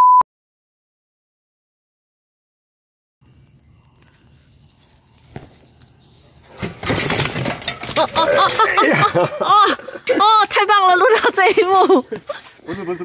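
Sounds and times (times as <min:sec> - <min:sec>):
bicycle rolling over rocky ground: 0:05.3 - 0:09.0.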